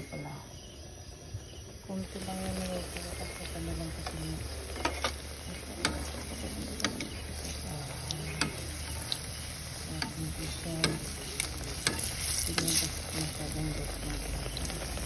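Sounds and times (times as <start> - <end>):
frying sizzle in hot oil: 1.8 - 15.0
utensil clicking against pan: 4.8 - 12.8.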